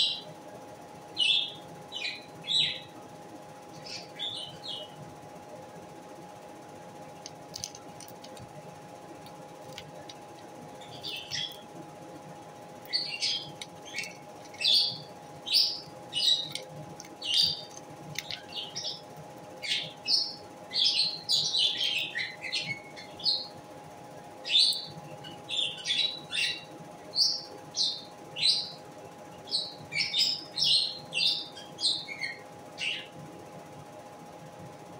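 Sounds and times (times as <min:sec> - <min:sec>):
lovebird chirping: 0:03.8 - 0:05.0, 0:09.9 - 0:11.7, 0:12.8 - 0:23.5.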